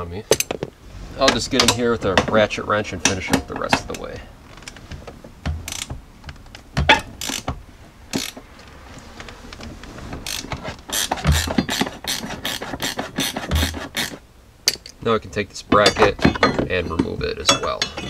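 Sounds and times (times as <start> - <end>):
ratchet wrench clicking: 5.6 - 5.9, 7.2 - 8.4, 10.2 - 15.0.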